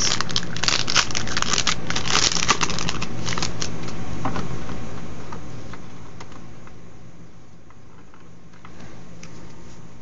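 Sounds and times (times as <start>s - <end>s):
wrapper crackling: 0.0s - 3.9s.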